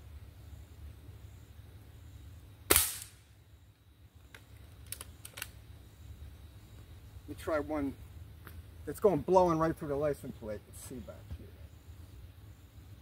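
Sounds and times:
air rifle shot: 0:02.7 - 0:03.3
rifle handling clicks: 0:04.3 - 0:05.5.

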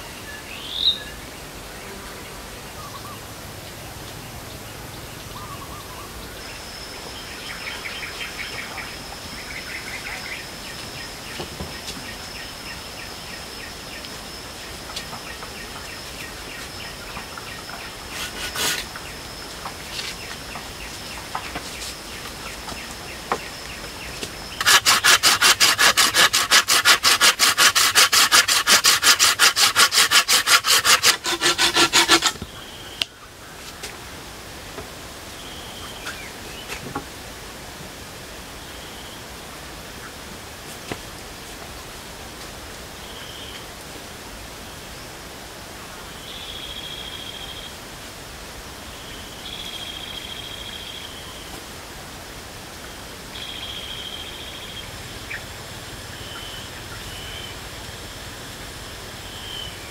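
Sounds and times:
thin high whine: 0:00.0 - 0:33.2
hand saw cutting wood: 0:18.1 - 0:18.9, 0:24.5 - 0:32.5.

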